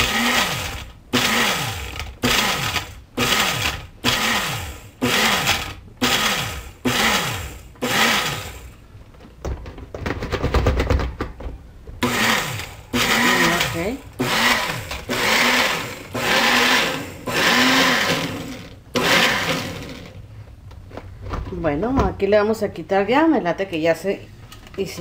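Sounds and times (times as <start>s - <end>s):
blender pulsing: 0.0s - 8.7s, 12.0s - 20.2s
blender jar rattling clicks: 12.1s - 20.1s.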